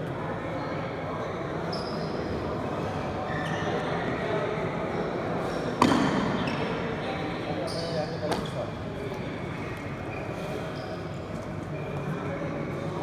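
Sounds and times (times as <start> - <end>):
murmur of voices echoing: 0.0 - 13.0
short squeaks: 1.7 - 2.3, 10.1 - 11.1.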